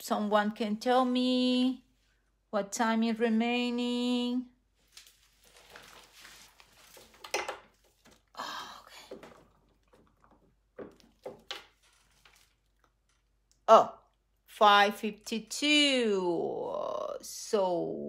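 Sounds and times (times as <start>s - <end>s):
soft handling rustles: 4.8s - 8.3s, 10.8s - 13.2s.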